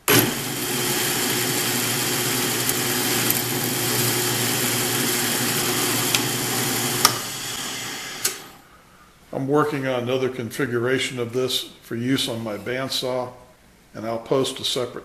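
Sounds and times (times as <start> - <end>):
drill press motor running: 0.0 - 8.6
drill bit boring into wood: 0.1 - 8.4.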